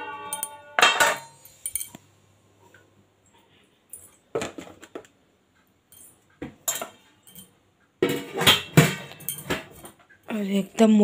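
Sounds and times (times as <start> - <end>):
kitchen items clinking on stone: 0.2 - 2.0, 5.9 - 10.6.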